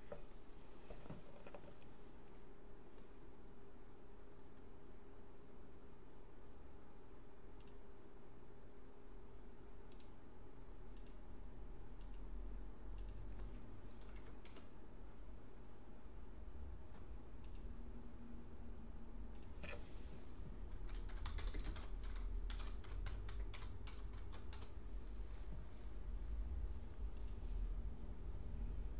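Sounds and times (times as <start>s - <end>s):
low steady hum: 0.0s - 28.9s
typing on computer keyboard: 13.0s - 14.8s, 20.7s - 24.8s.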